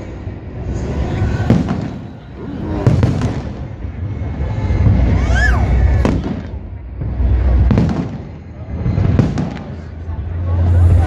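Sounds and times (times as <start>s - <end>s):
firework bangs: 1.0s - 11.0s
low rumble of booms: 1.4s - 11.0s
firework whistle: 4.4s - 6.6s.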